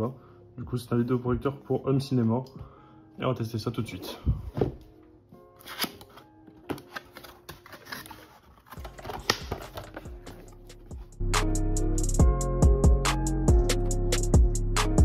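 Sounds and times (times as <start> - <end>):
cardboard packaging being opened: 5.6 - 10.9
music with drum beat: 10.1 - 15.0.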